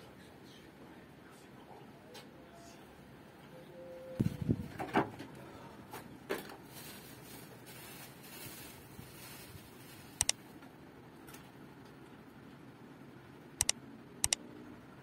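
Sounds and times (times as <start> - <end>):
double mouse click: 13.6 - 14.4.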